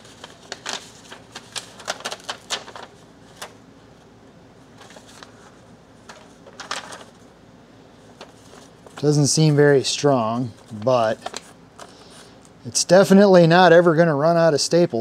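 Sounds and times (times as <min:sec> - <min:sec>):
paper rustling: 0:00.0 - 0:07.3, 0:08.0 - 0:12.6.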